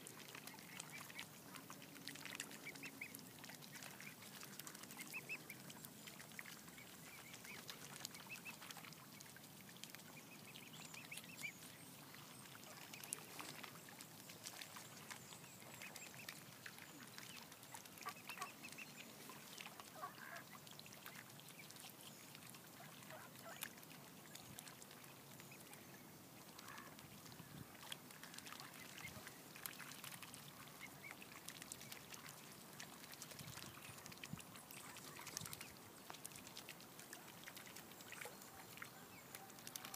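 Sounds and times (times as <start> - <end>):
clicks and splashes of feeding birds: 0.0 - 39.9
swan calls: 10.0 - 21.8.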